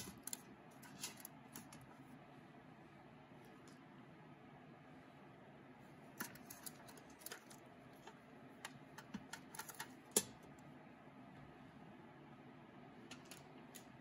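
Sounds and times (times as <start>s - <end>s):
ramekins clicking on wire rack: 0.0s - 1.9s.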